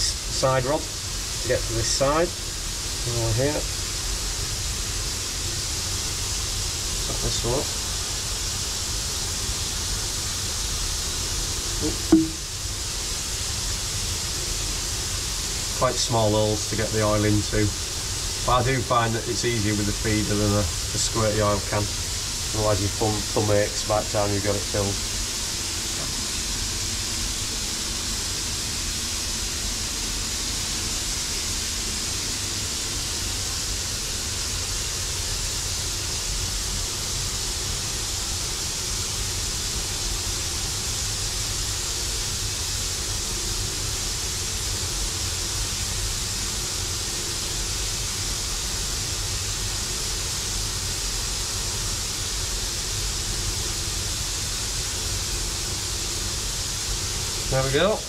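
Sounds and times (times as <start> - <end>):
steam hissing: 0.0 - 58.0.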